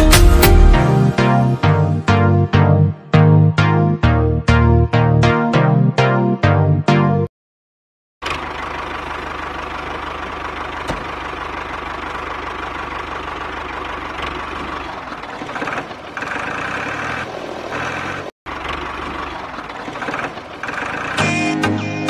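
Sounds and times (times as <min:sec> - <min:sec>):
diesel tractor engine idling: 0:08.2 - 0:22.0.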